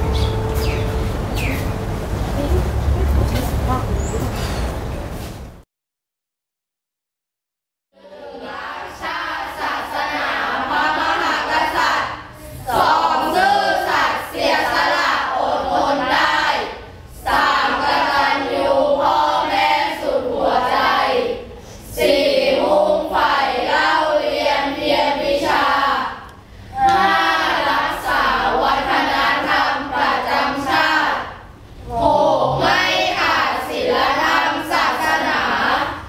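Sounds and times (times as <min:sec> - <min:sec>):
children singing in unison: 0:08.0 - 0:36.0.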